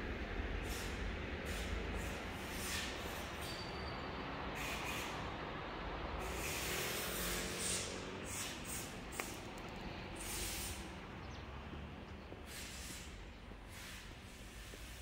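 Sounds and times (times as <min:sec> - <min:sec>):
bursts of hissing: 0:10.2 - 0:11.0, 0:12.4 - 0:15.0.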